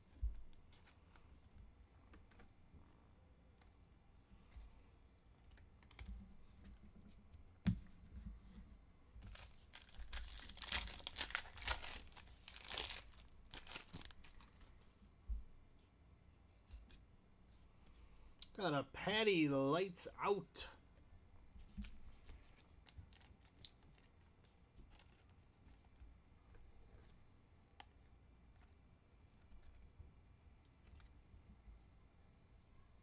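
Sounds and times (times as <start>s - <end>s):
foil wrapper tearing and crinkling: 9.2s - 14.5s.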